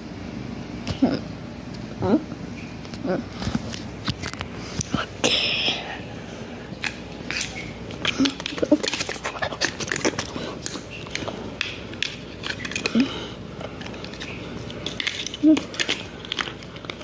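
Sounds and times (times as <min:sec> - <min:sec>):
cat scratching and rustling a toy: 0:07.2 - 0:13.0.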